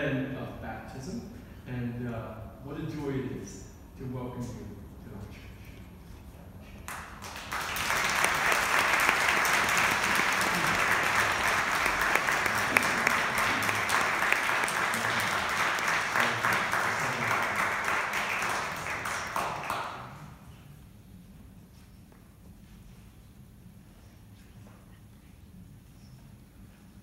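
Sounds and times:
congregation applauding: 6.9 - 20.4.

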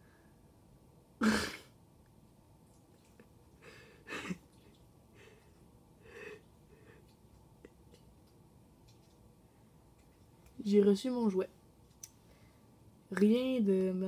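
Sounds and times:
noisy breaths: 12.2 - 12.9.

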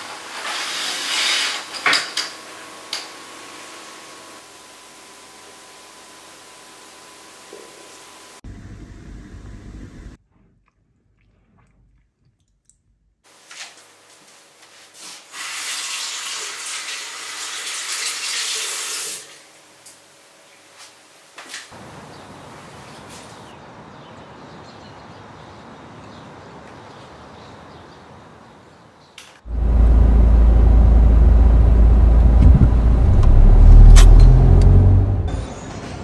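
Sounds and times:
tap water running: 15.3 - 19.4.

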